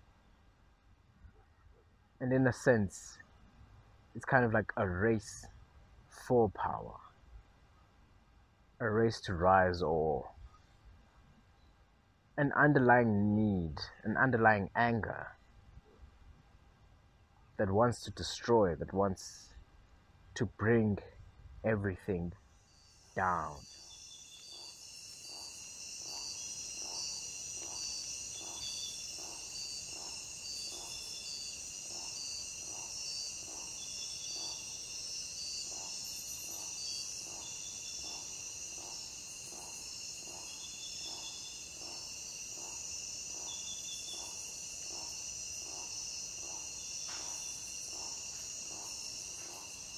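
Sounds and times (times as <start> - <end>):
low pulsing insect call: 0.0 - 49.9
crickets chirping: 21.4 - 49.9.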